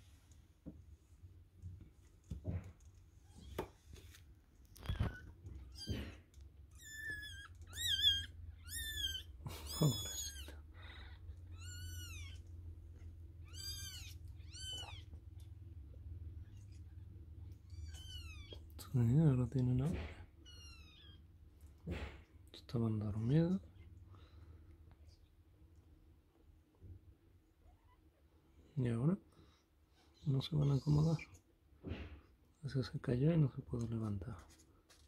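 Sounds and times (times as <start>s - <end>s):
soft rustling and scuffing: 1.7s - 5.6s
kittens mewing: 4.8s - 12.6s, 13.3s - 15.4s.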